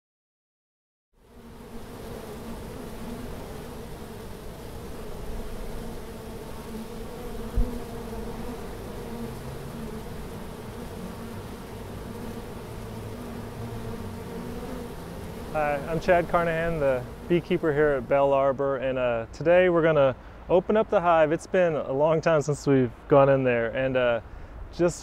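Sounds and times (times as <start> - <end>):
honeybees buzzing: 1.2 - 24.2
low thump: 7.5 - 7.8.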